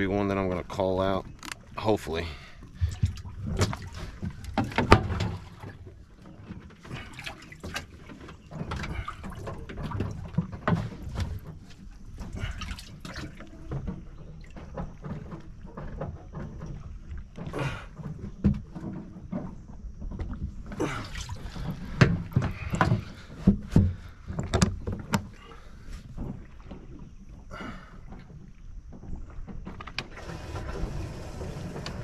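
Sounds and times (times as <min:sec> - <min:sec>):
water sloshing and splashing: 0:00.0 - 0:32.0
knocks and clatter of handling: 0:02.7 - 0:20.8, 0:21.6 - 0:25.4.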